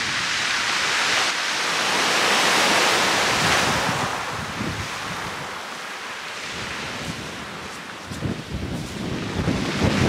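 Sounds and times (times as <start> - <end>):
waves washing over shingle: 0.0 - 10.0
wind buffeting microphone: 2.0 - 5.6, 6.5 - 10.0.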